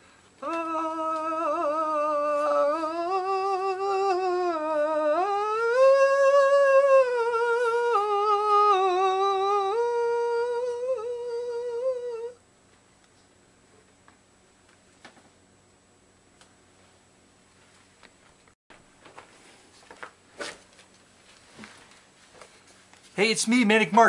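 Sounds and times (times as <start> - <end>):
person humming a slow tune: 0.0 - 12.4.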